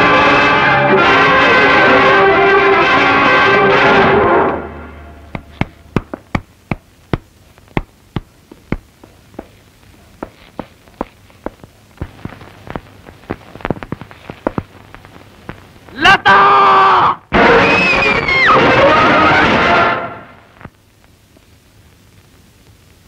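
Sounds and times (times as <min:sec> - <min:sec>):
brass orchestral score: 0:00.0 - 0:05.4, 0:17.3 - 0:20.4
hard-soled footsteps on hard floor: 0:05.3 - 0:15.7.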